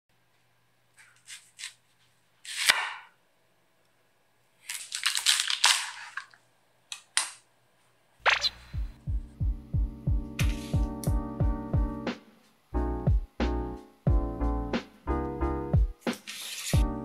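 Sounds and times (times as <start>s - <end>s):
knife chopping on cutting board: 2.5s - 3.1s, 10.4s - 11.1s.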